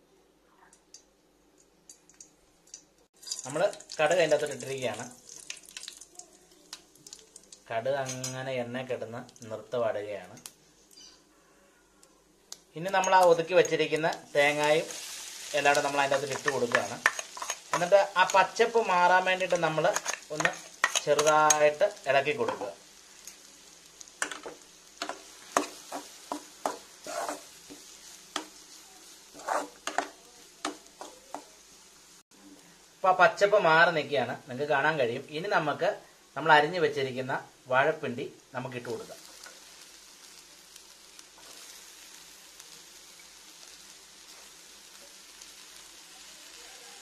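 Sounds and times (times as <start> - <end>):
faint sizzle: 0.0 - 47.0
spoon scraping a metal pan: 15.7 - 18.4, 19.8 - 21.7, 24.2 - 31.4.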